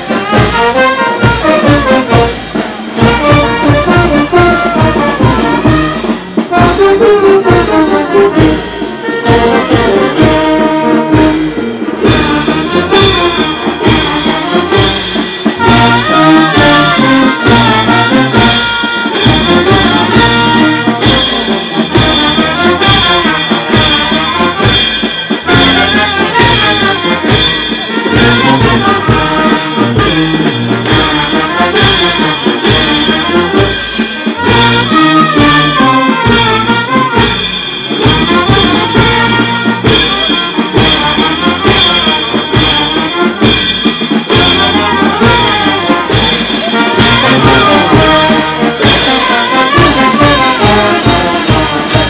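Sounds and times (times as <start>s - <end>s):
brass band playing: 0.0s - 52.0s
cymbals clashing: 8.4s - 52.0s
bass drum beat: 37.9s - 52.0s.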